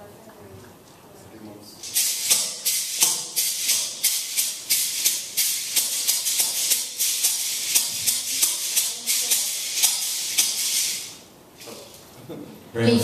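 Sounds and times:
tube shaker rattling: 0:01.8 - 0:12.2.

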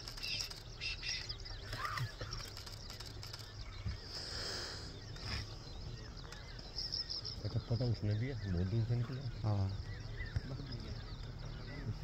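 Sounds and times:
insects calling: 0:00.0 - 0:12.0
small birds chirping: 0:00.0 - 0:12.0.

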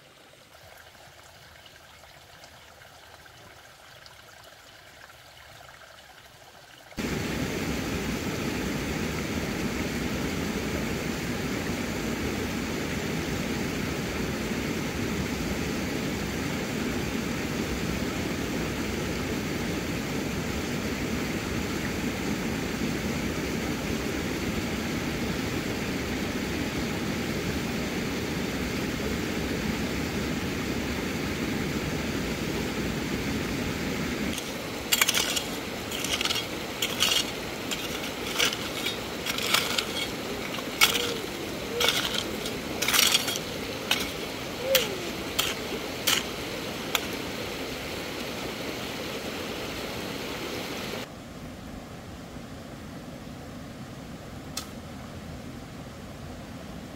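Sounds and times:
rocky stream rushing: 0:32.8 - 0:51.1
metal hoe chopping gravel: 0:34.3 - 0:47.2.

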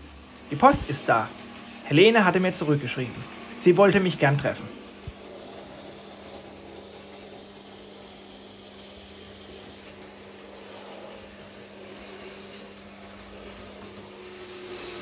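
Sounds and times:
toy motor whirring rasp: 0:04.4 - 0:15.0.

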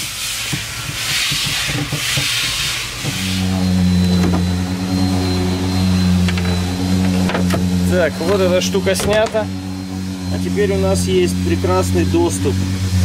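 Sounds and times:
machine motor humming: 0:02.7 - 0:13.0.

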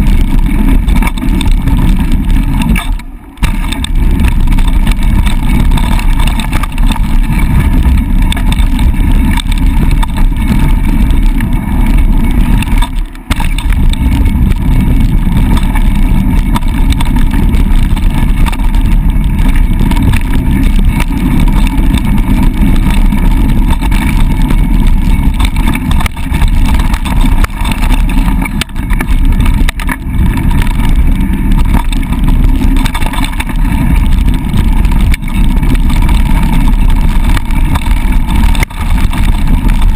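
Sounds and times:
bike tyres on gravel: 0:00.0 - 0:39.9
wind rumble on microphone: 0:00.0 - 0:39.9.

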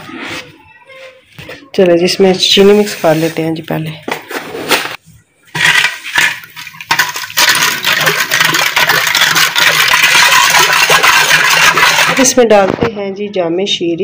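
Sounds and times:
ladle scraping a steel pot: 0:05.6 - 0:12.4.

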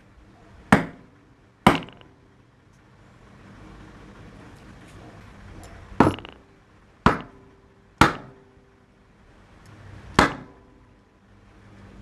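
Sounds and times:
metal parts knocking on wooden bench: 0:01.7 - 0:02.1, 0:06.0 - 0:06.5.

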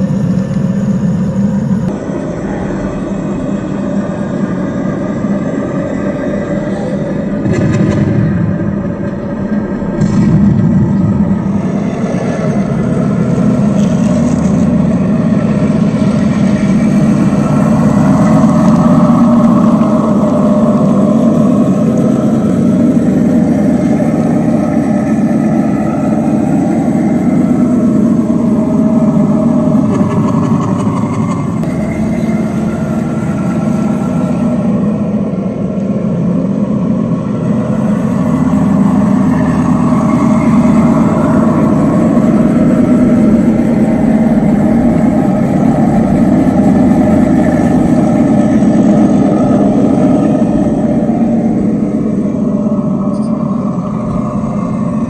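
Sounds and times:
model tank motor whine: 0:00.0 - 0:55.0.

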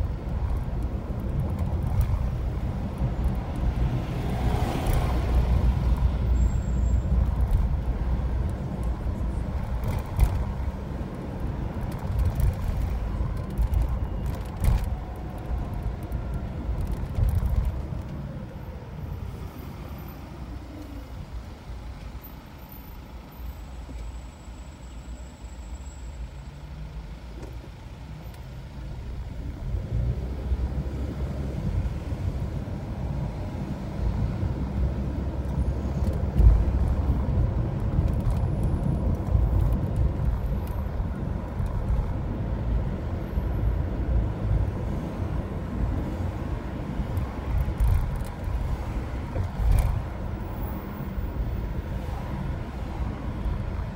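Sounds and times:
car engine and tyre rumble: 0:00.0 - 0:53.9.

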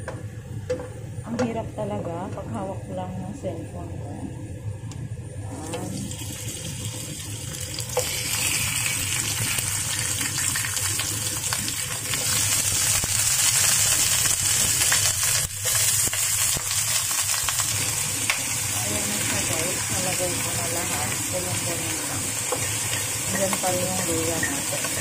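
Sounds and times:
chicken sizzling in hot oil: 0:05.8 - 0:25.0.

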